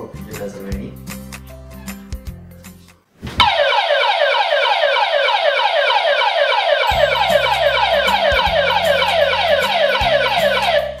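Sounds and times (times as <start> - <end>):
low background music: 0.0 - 3.0, 6.9 - 11.0
rapid falling siren alarm: 3.4 - 11.0.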